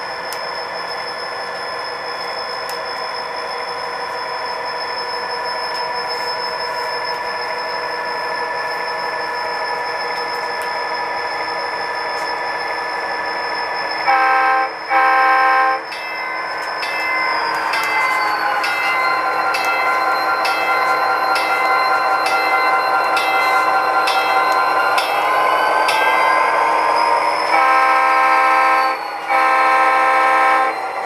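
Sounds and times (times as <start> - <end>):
model locomotive engine hum: 0.0 - 31.0
short horn blasts: 27.6 - 30.7.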